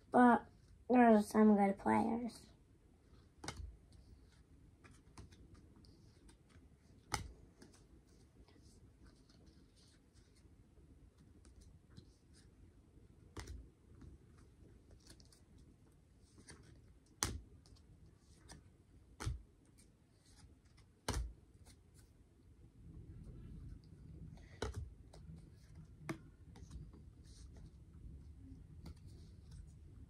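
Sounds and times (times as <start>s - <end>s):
cards sliding and clicking: 3.2s - 8.2s, 13.3s - 15.4s, 24.5s - 27.8s.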